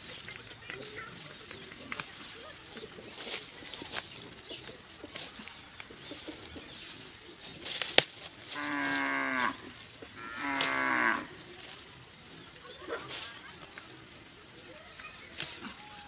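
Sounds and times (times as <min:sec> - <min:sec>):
cow mooing: 0:08.5 - 0:11.4.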